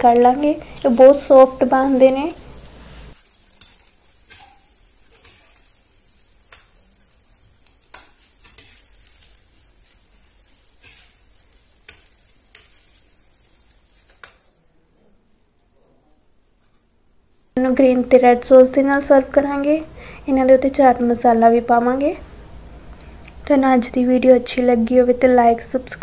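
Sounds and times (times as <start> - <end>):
food deep-frying in hot oil: 0.0 - 14.6, 17.6 - 26.0
metal spoon stirring in oil: 0.0 - 14.6.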